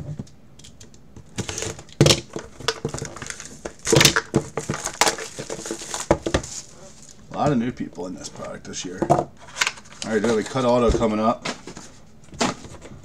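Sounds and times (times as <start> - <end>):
box cutter slitting shrink wrap: 1.4 - 6.7
shrink wrap crinkling: 1.4 - 7.3, 9.4 - 11.8.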